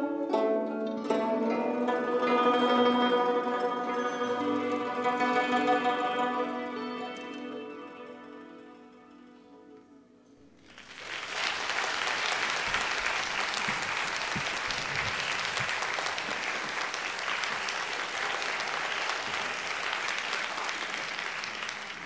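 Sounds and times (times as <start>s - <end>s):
audience applauding: 10.6s - 22.0s.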